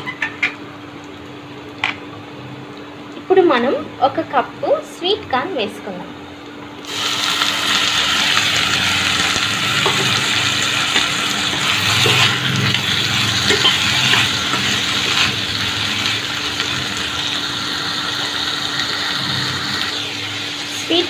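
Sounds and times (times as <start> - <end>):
food sizzling in hot oil: 6.7 - 21.0.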